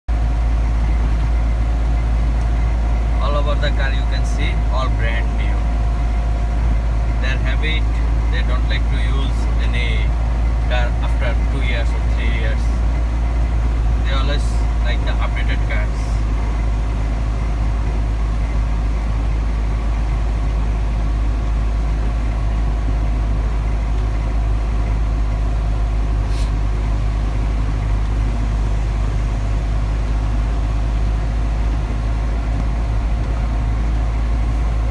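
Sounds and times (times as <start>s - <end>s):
road rumble and engine hum: 0.0s - 34.9s
short hiss: 26.3s - 26.6s.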